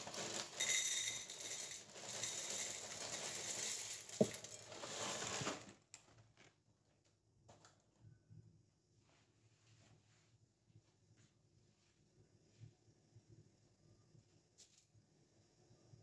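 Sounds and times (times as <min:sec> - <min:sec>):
plastic bag crinkling: 0:00.0 - 0:05.8.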